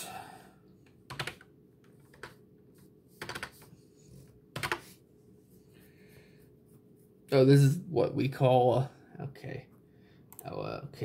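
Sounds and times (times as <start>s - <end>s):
typing on computer keyboard: 1.0s - 2.4s, 3.2s - 3.6s, 4.5s - 4.9s.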